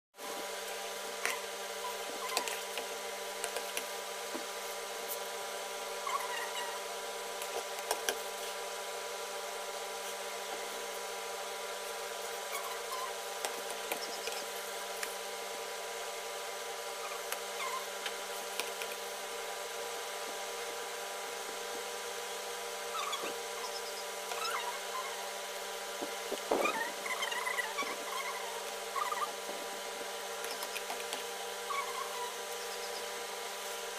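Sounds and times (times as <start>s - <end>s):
small motor humming: 22.8s - 33.9s.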